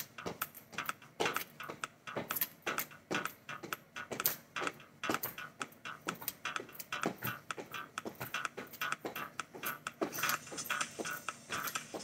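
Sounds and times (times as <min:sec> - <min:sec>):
feet thudding on tiled floor: 0:00.0 - 0:12.0.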